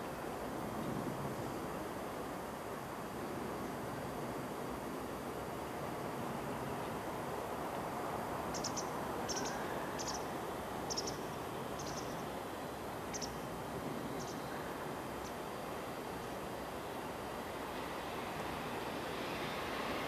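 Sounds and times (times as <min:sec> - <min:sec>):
steady background hiss: 0:00.0 - 0:20.0
small bird chirping: 0:08.5 - 0:10.3, 0:10.9 - 0:12.2, 0:13.1 - 0:13.4, 0:14.2 - 0:14.5.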